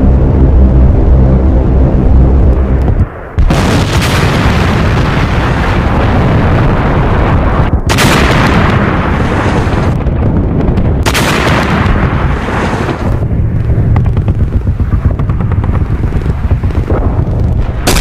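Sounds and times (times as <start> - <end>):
piston aircraft engines droning: 0.0 - 3.4
artillery fire and explosions: 0.0 - 18.0.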